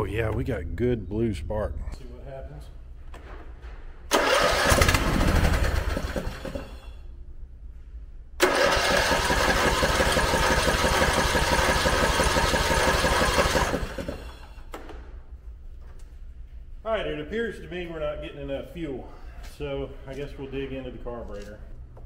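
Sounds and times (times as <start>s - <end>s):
engine starter cranking: 4.1s - 6.8s, 8.4s - 14.6s.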